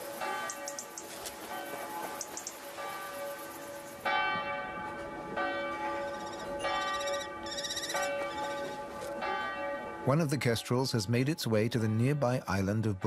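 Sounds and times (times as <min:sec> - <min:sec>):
church bell tolling: 0:04.0 - 0:10.3.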